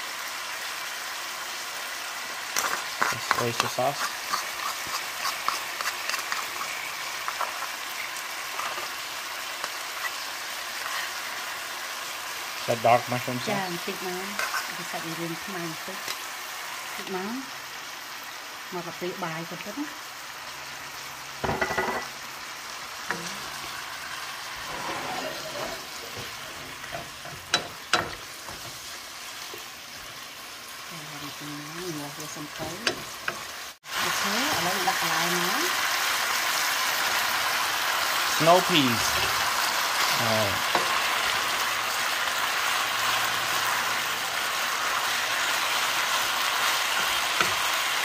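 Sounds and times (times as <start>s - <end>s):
beef sizzling in pan: 0.0s - 48.0s
spatula knocking on pan: 26.9s - 28.8s.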